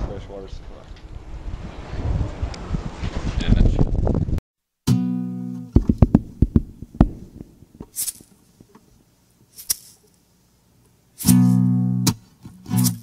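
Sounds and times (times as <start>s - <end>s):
acoustic guitar strumming and plucking: 4.8s - 7.3s, 11.2s - 13.0s.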